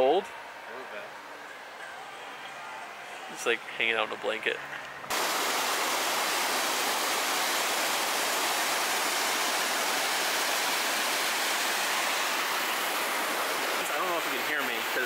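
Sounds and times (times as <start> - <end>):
water rushing over boulders: 5.1 - 15.0.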